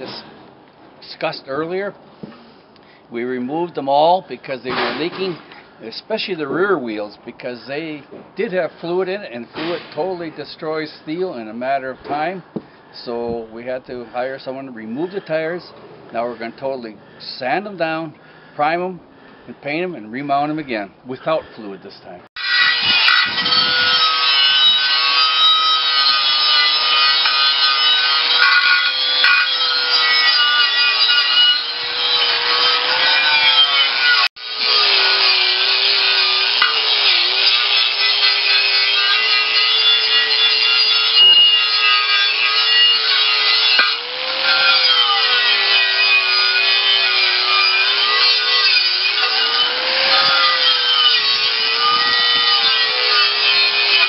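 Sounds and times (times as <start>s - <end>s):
angle grinder grinding metal: 22.4s - 54.0s.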